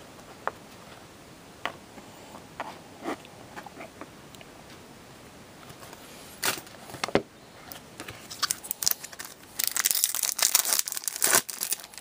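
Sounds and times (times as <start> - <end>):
plastic crinkling: 8.2 - 12.0.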